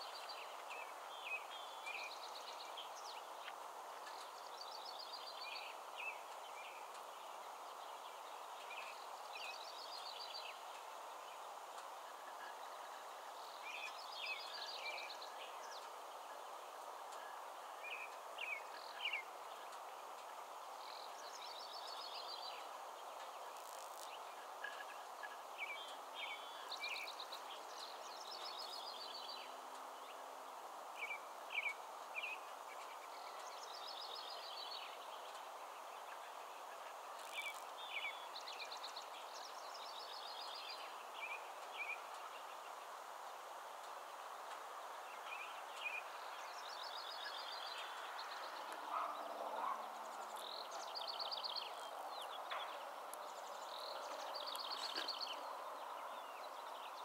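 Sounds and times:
outdoor background hiss: 0.0s - 57.0s
songbird singing: 0.0s - 57.0s.

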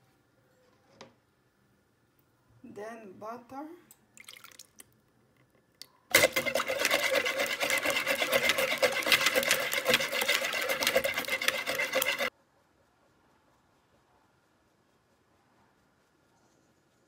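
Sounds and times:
electric hand mixer whisking: 6.1s - 12.3s.

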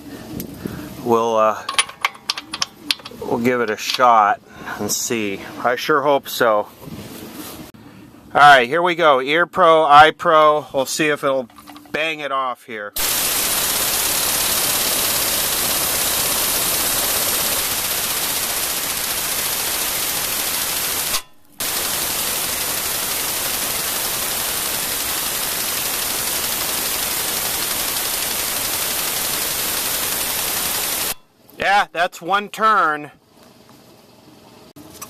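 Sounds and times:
air impact wrench hammering: 1.6s - 4.2s, 11.5s - 12.0s, 13.0s - 31.3s.

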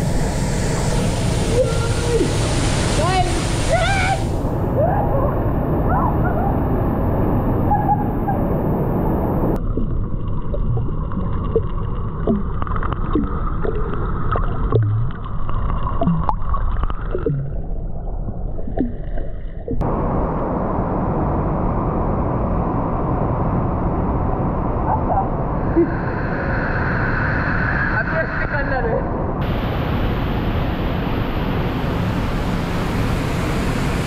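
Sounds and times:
waterfall rushing: 1.4s - 5.5s
underwater bubbling and gurgling: 8.1s - 19.8s.

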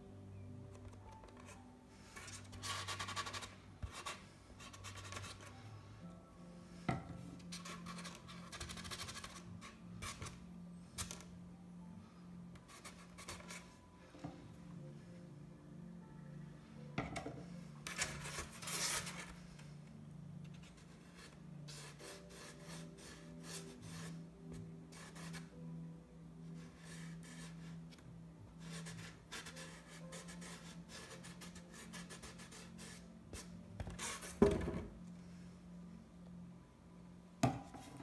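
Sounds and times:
paintbrush dabbing and rubbing: 20.6s - 24.3s, 26.5s - 27.8s.

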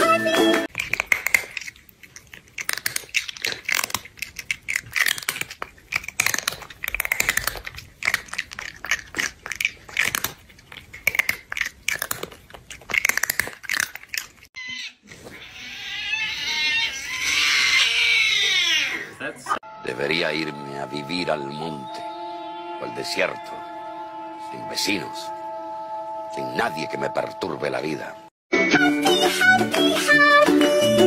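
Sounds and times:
cat chewing food: 0.7s - 14.6s
cat wailing cry: 14.6s - 19.2s.

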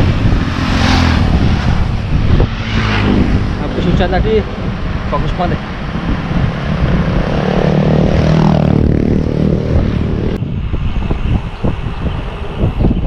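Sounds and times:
vehicle engine passing: 0.0s - 10.4s
wind on microphone: 0.0s - 13.0s.

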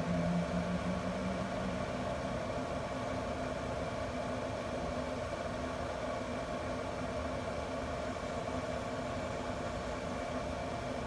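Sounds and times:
blower fan humming: 0.0s - 4.0s.

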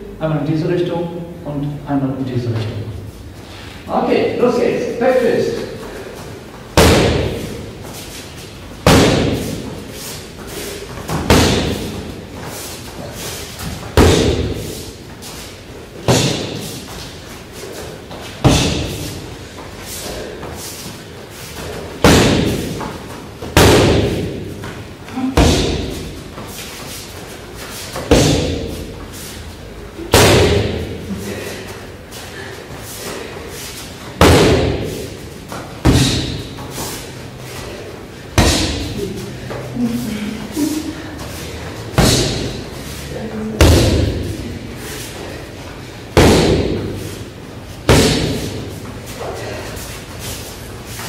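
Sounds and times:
punches smacking a mitt: 6.8s - 7.6s, 8.8s - 9.7s, 11.1s - 12.0s, 13.9s - 14.7s, 18.4s - 19.1s, 22.0s - 24.5s, 25.4s - 26.1s, 28.0s - 28.8s, 30.1s - 31.0s, 34.2s - 35.1s, 35.8s - 36.6s, 38.4s - 38.9s, 42.0s - 42.6s, 43.6s - 44.3s, 46.2s - 47.0s, 47.9s - 48.6s.

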